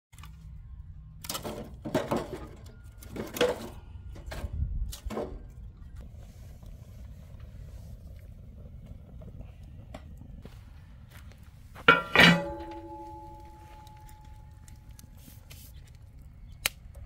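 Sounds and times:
steady low rumble: 3.7 - 17.0.

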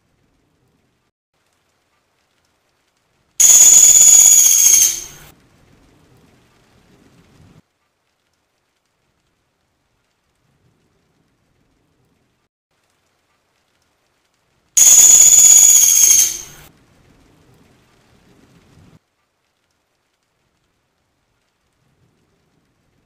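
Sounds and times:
woodpecker buzzy trill: 3.4 - 5.2, 14.8 - 16.6.

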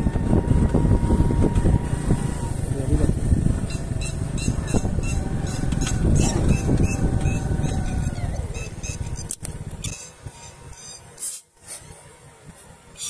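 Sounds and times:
wind rumbling on microphone: 0.0 - 10.9.

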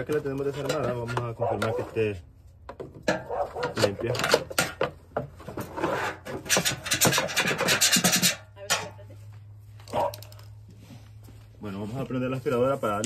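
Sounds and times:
tool scraping sheet metal: 5.4 - 8.5.

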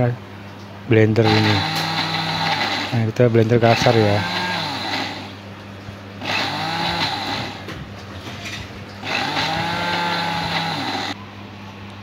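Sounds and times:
electric blender motor: 1.2 - 3.0, 3.6 - 5.4, 6.2 - 7.7, 9.0 - 11.2.

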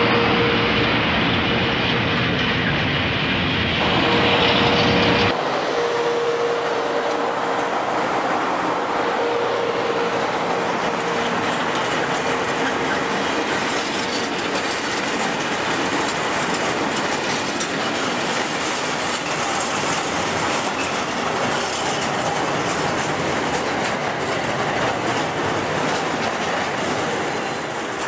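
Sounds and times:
train wheels clattering on rails: 0.0 - 5.4, 9.8 - 28.0.

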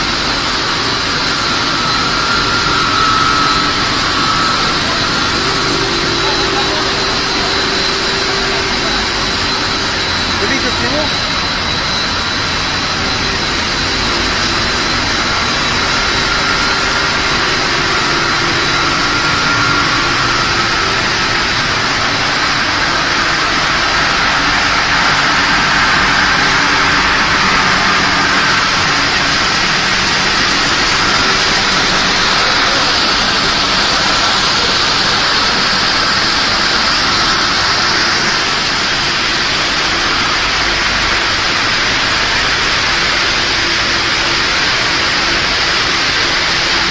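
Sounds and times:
faint whining tones: 0.0 - 41.0
machinery hiss and hum: 0.0 - 46.9.

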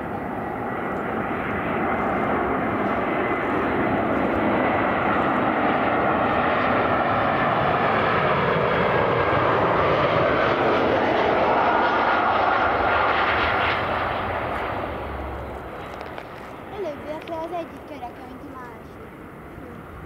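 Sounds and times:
jet engines rushing: 0.0 - 20.0.

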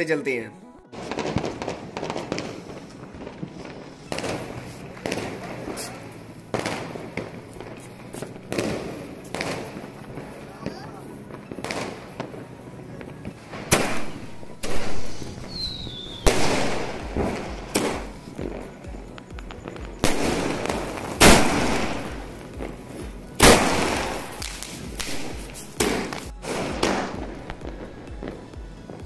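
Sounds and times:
firework bangs with echo: 0.9 - 29.0
falling firework whistle: 13.7 - 18.1.

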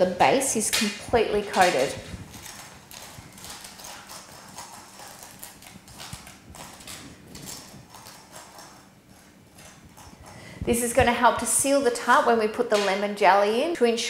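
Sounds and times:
palette knife scraping crunchy coating: 0.6 - 11.5.

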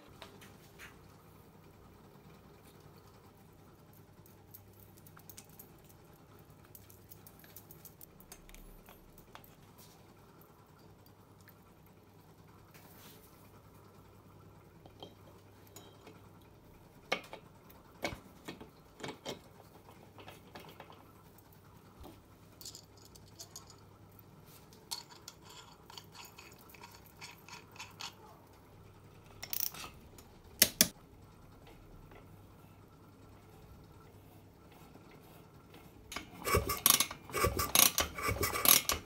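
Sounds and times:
metallic clicks of small parts: 3.9 - 9.6, 24.8 - 28.2, 29.3 - 31.0.

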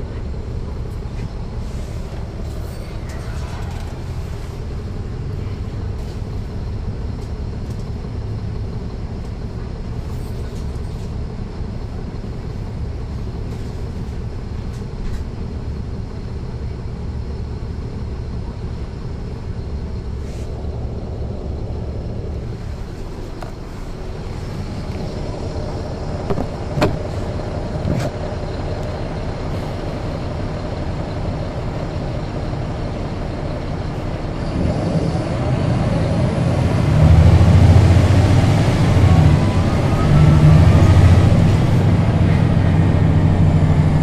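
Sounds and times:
bus diesel engine running: 0.0 - 44.0
transmission whine: 19.3 - 29.3
sharp knocks: 26.3 - 27.1.

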